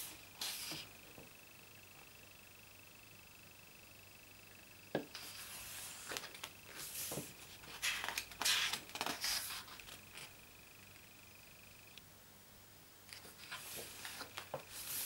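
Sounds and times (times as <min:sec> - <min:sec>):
paper page rustling and sliding: 0:00.4 - 0:00.9, 0:05.1 - 0:10.3, 0:13.1 - 0:15.0.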